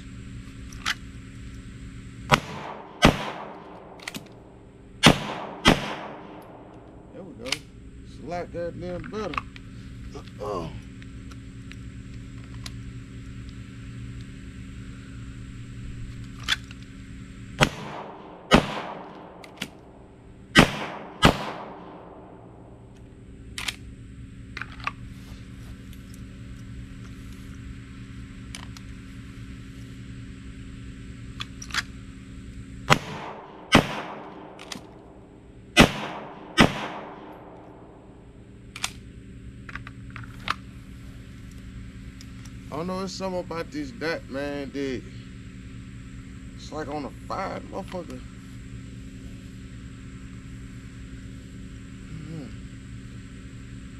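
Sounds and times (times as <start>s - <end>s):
pistol shots with echo: 2.3s - 4.0s, 5.0s - 6.8s, 17.6s - 19.7s, 20.6s - 22.4s, 32.9s - 34.6s, 35.8s - 37.8s.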